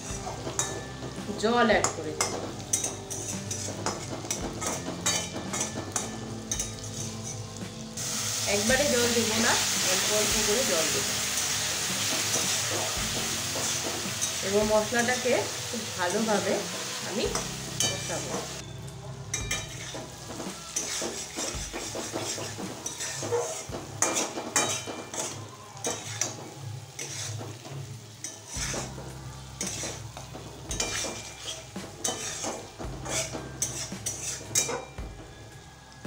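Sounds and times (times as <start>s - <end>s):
metal spatula scraping wok: 0.0s - 35.0s
spices sizzling in oil: 0.0s - 36.0s.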